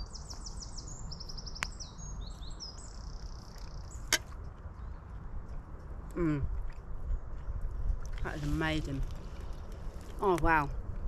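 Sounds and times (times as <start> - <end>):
songbirds trilling: 0.0 - 6.2
low background rumble: 0.7 - 11.0.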